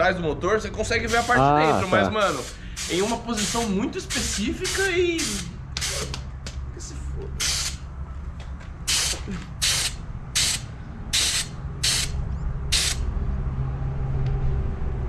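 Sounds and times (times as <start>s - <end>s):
steady low hum: 0.0s - 15.0s
spray paint can hissing: 1.0s - 6.2s, 7.4s - 7.8s, 8.9s - 13.0s.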